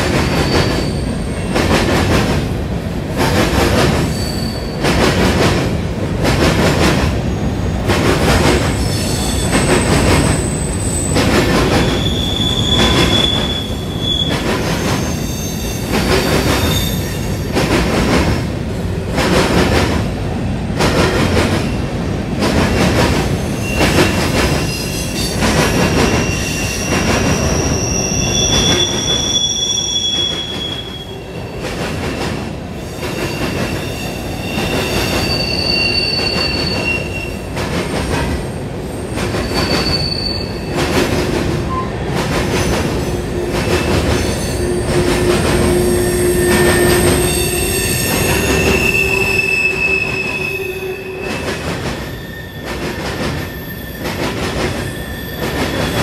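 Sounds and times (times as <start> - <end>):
high-pitched wheel squeal: 0.4 - 1.4, 11.8 - 15.9, 23.6 - 31.3, 33.2 - 37.4, 39.4 - 40.8, 43.3 - 52.8.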